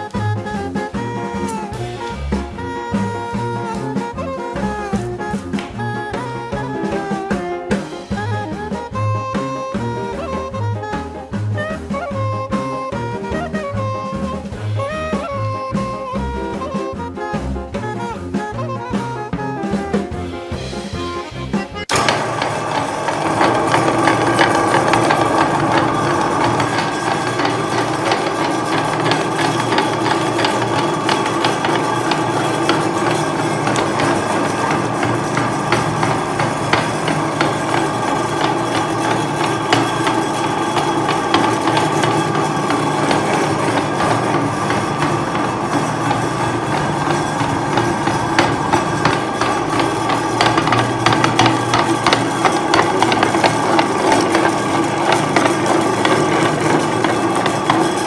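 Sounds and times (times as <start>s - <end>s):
clicks and rattles: 21.9s - 58.0s
meat grinder motor humming: 21.9s - 58.0s.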